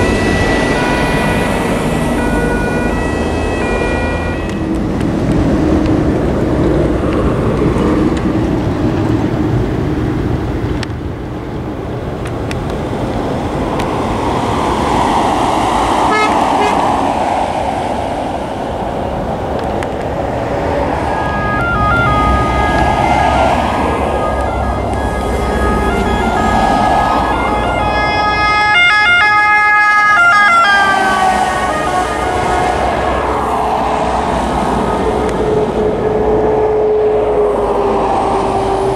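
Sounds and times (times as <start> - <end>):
ambulance two-tone siren: 0.0 - 5.1, 16.1 - 17.1, 20.6 - 38.9
motorway traffic rushing past: 0.0 - 38.9.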